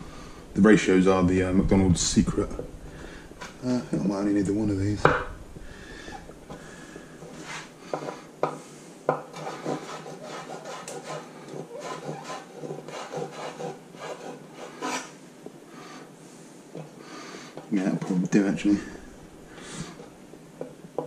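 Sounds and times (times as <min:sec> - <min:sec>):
knife tapping wooden board: 0:05.0 - 0:05.3
knife scraping across board: 0:07.3 - 0:08.2, 0:09.3 - 0:15.2.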